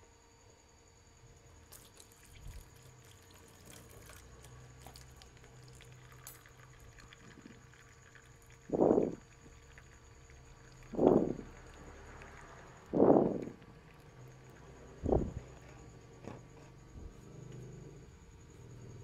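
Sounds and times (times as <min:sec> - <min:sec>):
liquid trickling into a plastic basin: 0:01.6 - 0:15.6.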